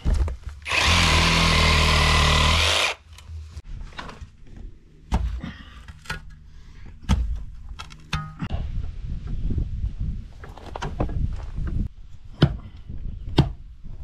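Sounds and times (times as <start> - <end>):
power saw cutting root: 0.6 - 3.0.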